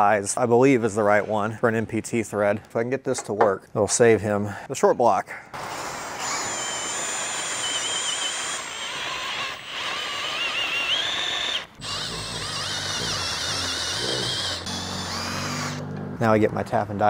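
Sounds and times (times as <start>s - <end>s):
cordless drill whining: 5.6s - 15.8s.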